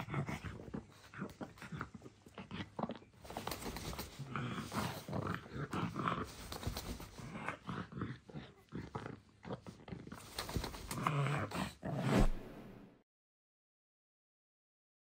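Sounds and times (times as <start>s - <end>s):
dog grunting: 0.0s - 12.1s.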